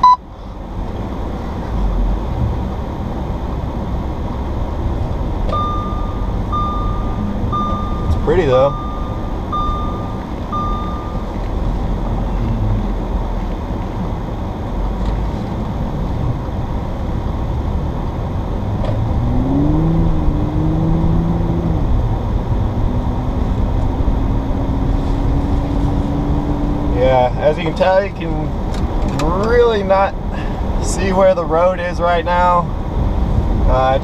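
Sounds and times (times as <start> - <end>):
short electronic beeps: 0.0 - 0.2, 5.5 - 11.4
car engine hum: 0.0 - 34.0
road and tyre noise: 0.0 - 34.0.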